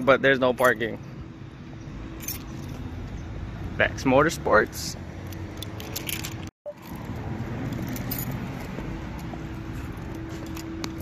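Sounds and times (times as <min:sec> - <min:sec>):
outdoor background noise: 0:00.0 - 0:11.0
keys jingling: 0:02.2 - 0:02.9, 0:05.2 - 0:08.7.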